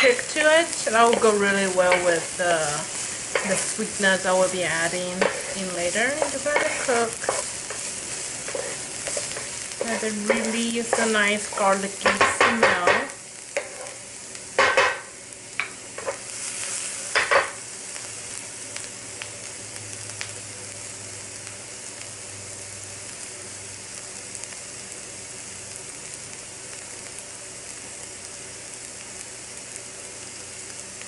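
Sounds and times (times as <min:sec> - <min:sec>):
onion sizzling in oil: 0:00.0 - 0:31.0
spatula scraping and tapping pan: 0:03.3 - 0:03.8, 0:05.1 - 0:14.0, 0:14.6 - 0:16.2.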